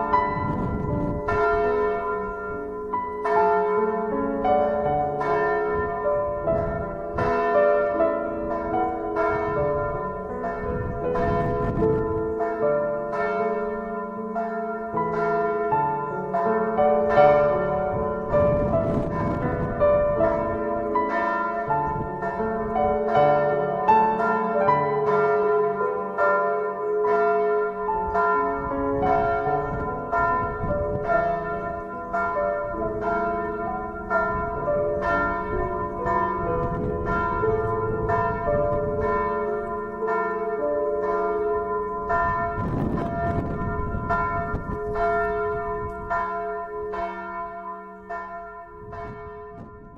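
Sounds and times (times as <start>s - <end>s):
church bells pealing: 0.0s - 49.9s.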